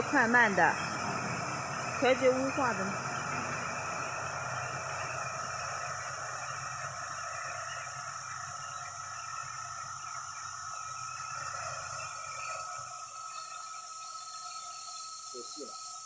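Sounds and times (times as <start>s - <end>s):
spray gun hissing: 0.0s - 8.3s
low steady hum: 0.0s - 12.7s.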